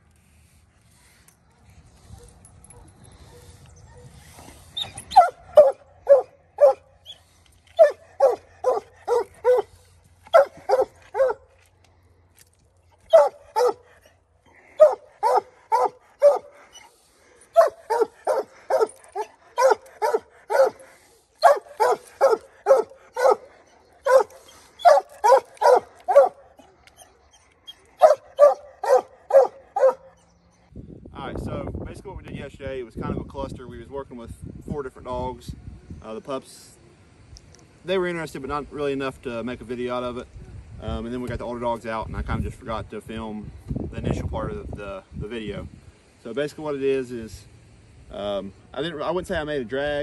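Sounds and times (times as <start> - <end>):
dogs barking: 5.0 - 7.1, 7.8 - 11.5, 13.1 - 14.0, 14.7 - 16.8, 17.4 - 30.3.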